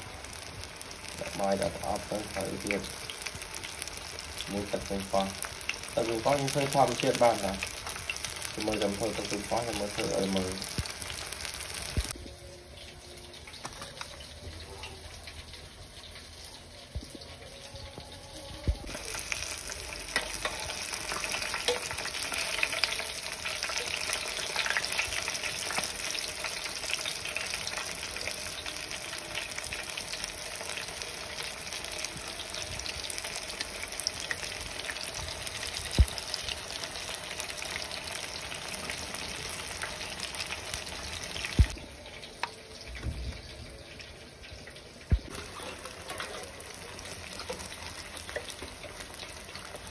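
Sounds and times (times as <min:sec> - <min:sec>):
meat deep-frying in oil: 0:00.0 - 0:49.9.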